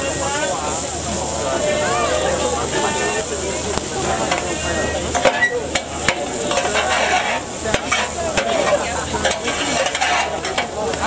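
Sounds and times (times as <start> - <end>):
patties sizzling on griddle: 0.0 - 11.0.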